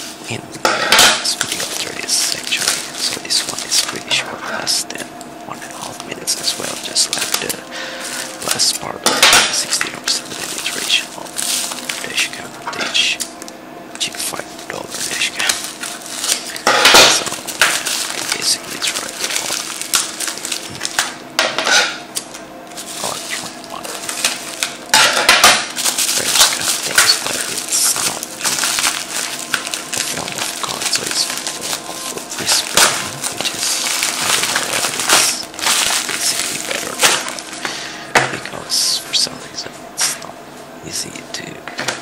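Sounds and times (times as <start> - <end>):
cardboard and tape rustling: 1.0 - 5.0, 5.6 - 8.9, 9.5 - 13.0, 14.0 - 21.2, 22.2 - 37.8.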